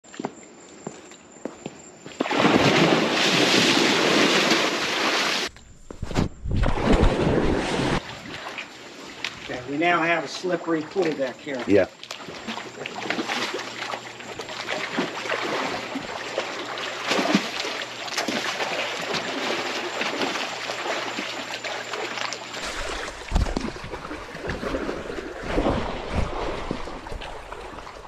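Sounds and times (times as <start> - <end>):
crocodile splashing in water: 2.2 - 5.5, 12.0 - 28.0
wind on microphone: 5.6 - 8.3, 22.6 - 27.6.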